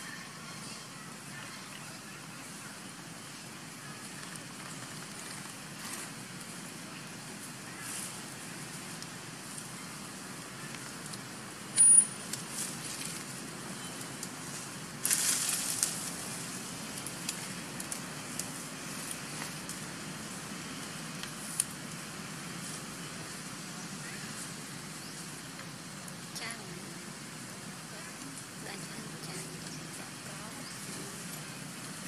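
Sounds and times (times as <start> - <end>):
crackling rustle: 0.0 - 32.0
steady outdoor hiss: 0.0 - 32.0.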